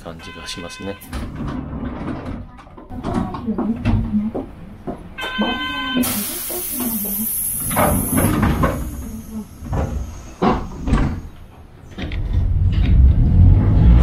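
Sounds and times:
streetcar wheels rumbling: 0.0 - 14.0
clacks and rattles: 1.0 - 5.7
hiss: 6.0 - 11.0.

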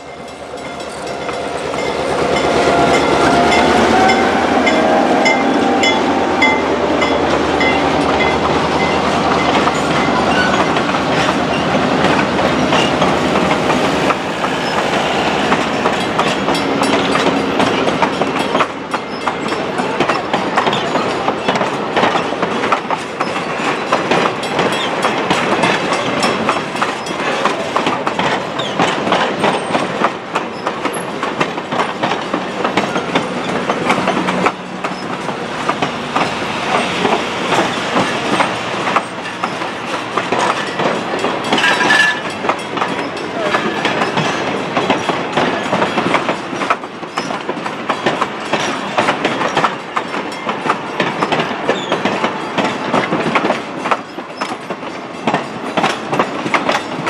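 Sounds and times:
diesel locomotive engine running: 0.0 - 22.0, 29.2 - 46.9
train wheels clacking over rail joints: 0.0 - 57.0.

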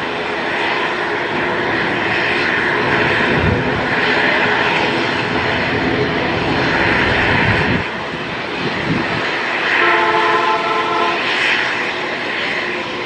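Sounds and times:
turboprop engines droning: 0.0 - 13.0
multi-tone hum: 2.8 - 12.1.

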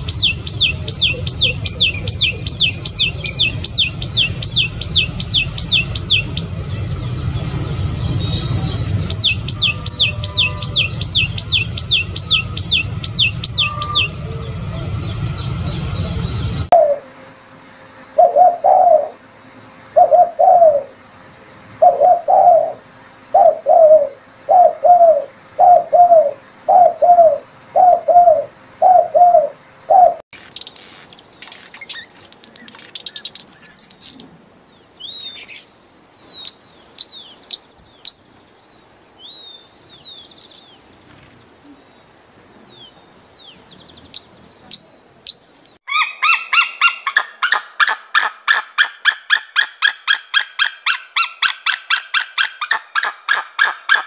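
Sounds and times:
bird singing high down-slurred notes: 0.0 - 16.8
hummingbird chirps and squeaks: 9.1 - 14.6, 30.4 - 34.2
dove cooing: 16.7 - 17.1, 18.1 - 19.2, 19.9 - 21.0, 21.8 - 30.2.

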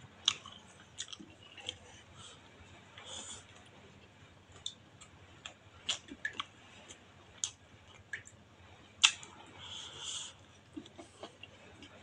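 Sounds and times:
wet mouth clicks while chewing: 9.0 - 9.2.

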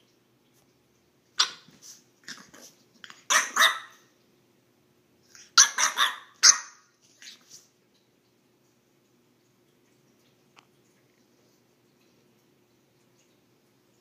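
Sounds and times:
puppy barking: 1.4 - 1.7, 3.3 - 4.0, 5.4 - 6.9.

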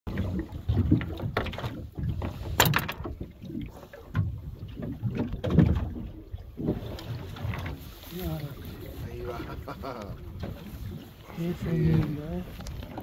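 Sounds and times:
water slapping against boat hull: 0.1 - 13.0.

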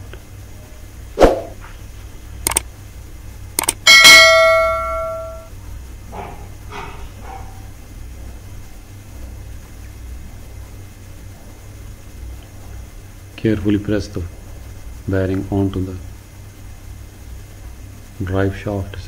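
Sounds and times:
low mechanical hum: 0.0 - 19.0
short clicks: 2.4 - 2.7, 3.6 - 3.8
bell-like ding: 3.9 - 5.5.

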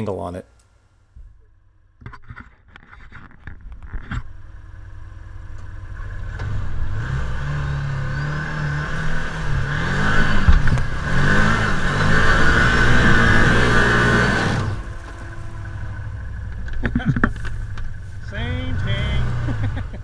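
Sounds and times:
off-road vehicle engine revving: 4.2 - 20.0
knocks and rattles: 16.4 - 18.0.

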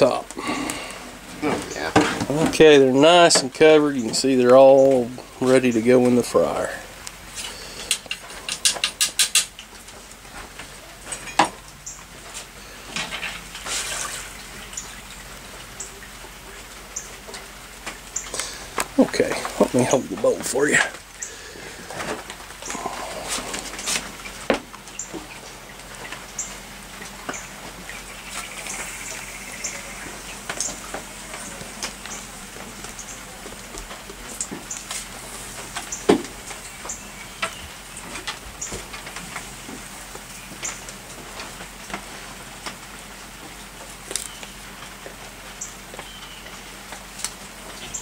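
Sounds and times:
low steady hum: 0.0 - 48.0.

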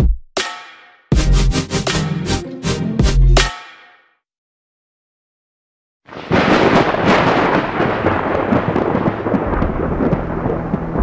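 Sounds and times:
low rumble: 7.0 - 11.0.

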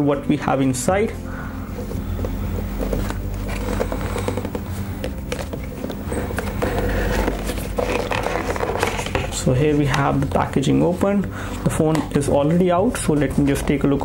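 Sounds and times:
steady low hum: 0.0 - 13.5
cardboard box scraping and tapping: 1.8 - 10.3.

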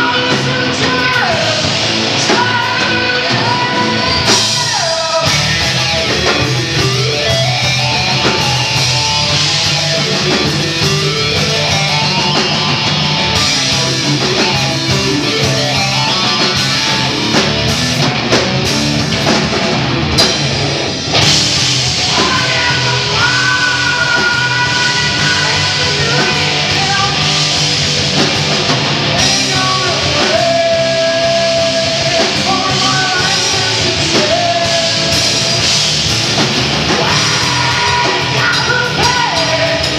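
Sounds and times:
bass guitar: 0.0 - 39.9
drum kit: 0.0 - 39.9
electric guitar: 0.0 - 39.9.

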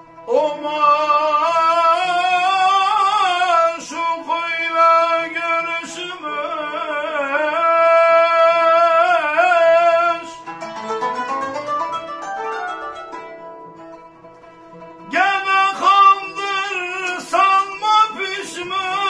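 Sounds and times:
plucked strings: 0.0 - 19.0
man singing melisma: 0.2 - 10.6, 15.0 - 19.0.

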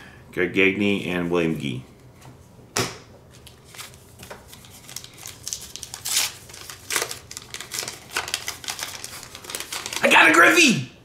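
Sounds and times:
foil wrapper crinkling: 3.6 - 10.4.

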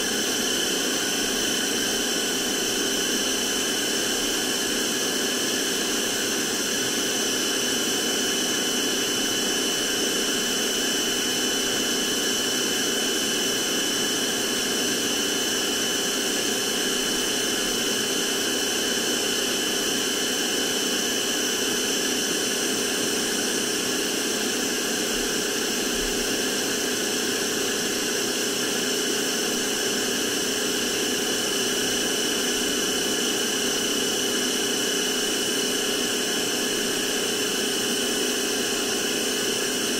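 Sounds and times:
handheld vacuum cleaner running: 0.0 - 39.9.

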